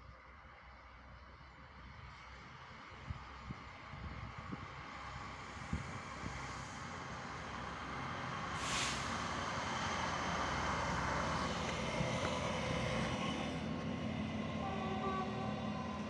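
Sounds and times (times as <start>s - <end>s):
diesel train engine running: 1.8s - 16.0s
train wheels rumbling on track: 2.0s - 16.0s
brief hiss: 8.6s - 9.3s.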